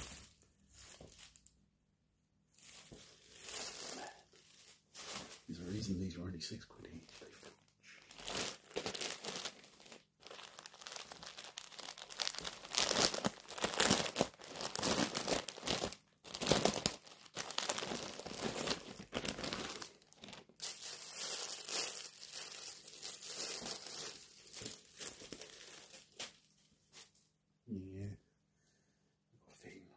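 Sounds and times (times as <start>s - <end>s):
plastic packaging crinkling and tearing: 2.6s - 5.9s, 6.9s - 26.7s.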